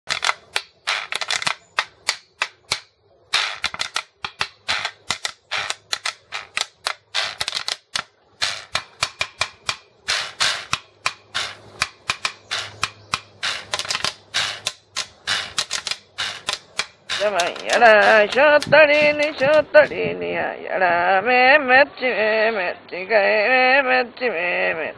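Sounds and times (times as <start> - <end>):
jawbone scraped with stick: 0.1 - 20.0.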